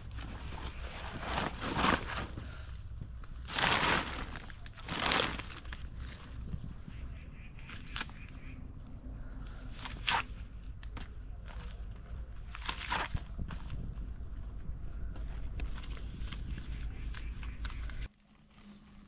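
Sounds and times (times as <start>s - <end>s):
gear rustling: 0.0s - 6.8s
insects droning: 0.0s - 19.0s.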